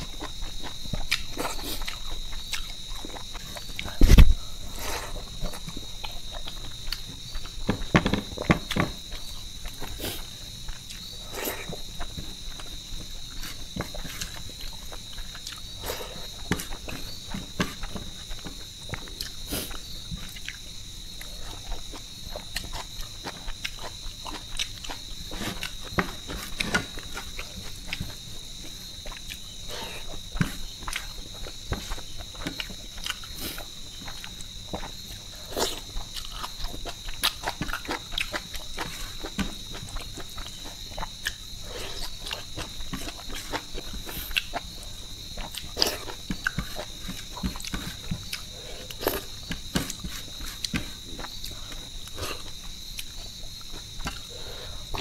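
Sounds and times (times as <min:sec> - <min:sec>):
person chewing: 0:00.0 - 0:07.7, 0:08.4 - 0:55.0
crickets chirring: 0:00.0 - 0:55.0.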